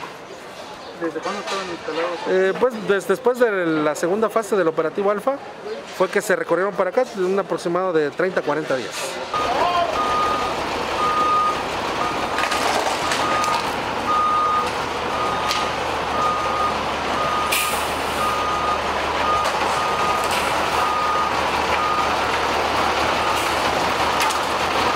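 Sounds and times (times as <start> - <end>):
engine hum: 9.2 - 24.9
truck reversing alarm beeping: 9.3 - 24.9.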